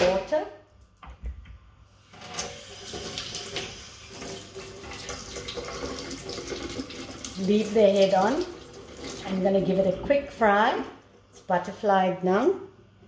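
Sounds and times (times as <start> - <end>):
tap water running into a steel sink: 2.1 - 10.0.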